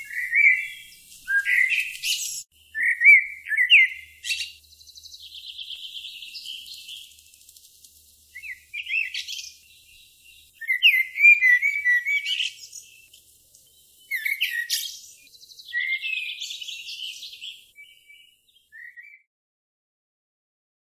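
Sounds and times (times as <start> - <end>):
songbird singing: 0.0 - 19.3.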